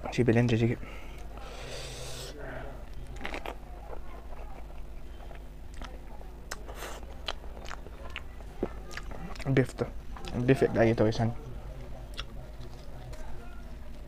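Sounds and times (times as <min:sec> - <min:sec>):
close-up chewing: 0:02.8 - 0:10.6, 0:11.7 - 0:14.0.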